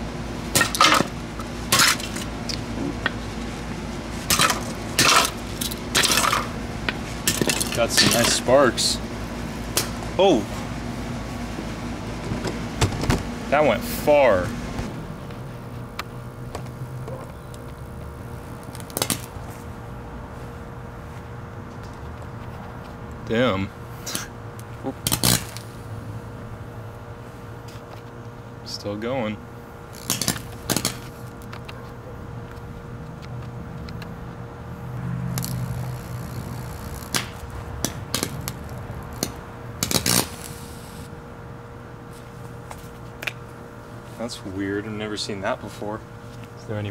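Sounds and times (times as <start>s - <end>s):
sharp sparking snaps: 9.7s - 10.0s, 18.6s - 19.4s, 25.0s - 25.7s, 29.9s - 31.1s, 35.3s - 41.1s
loud crackles: 35.3s - 41.1s
blender motor hum: 35.4s - 37.2s
blender motor humming: 35.4s - 37.3s, 38.3s - 41.1s.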